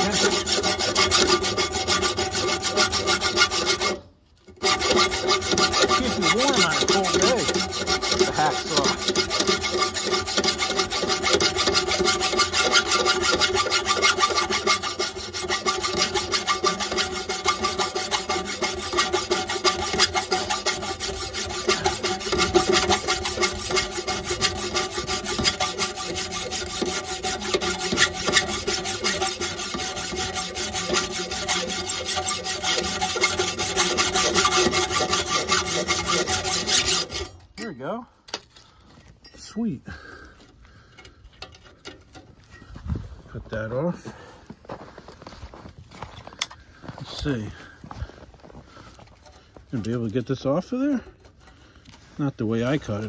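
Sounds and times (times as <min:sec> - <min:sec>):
hacksaw sawing through metal: 0:00.0 - 0:38.4.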